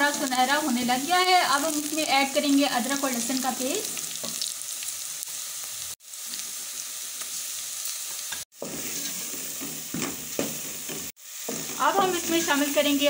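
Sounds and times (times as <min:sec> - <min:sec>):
onions sizzling in oil: 0:00.0 - 0:13.0
wooden spoon scraping pot: 0:08.6 - 0:12.5.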